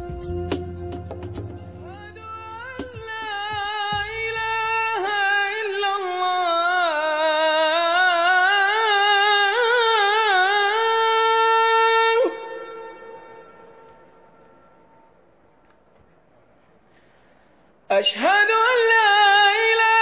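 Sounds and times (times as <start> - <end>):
solo wind instrument melody: 0.0 - 3.6.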